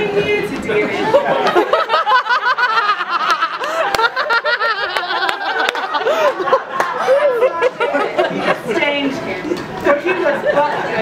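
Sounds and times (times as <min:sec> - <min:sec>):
audience laughing: 0:00.9 - 0:09.6.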